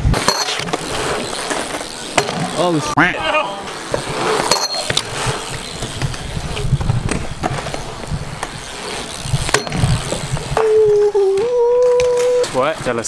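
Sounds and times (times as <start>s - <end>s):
wheels rolling on concrete: 0.0s - 13.0s.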